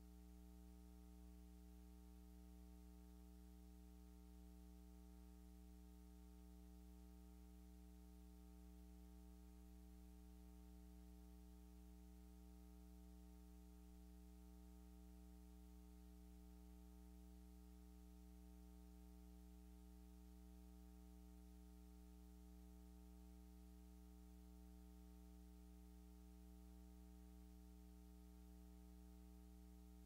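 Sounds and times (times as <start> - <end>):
faint low hum: 0.0 - 30.0.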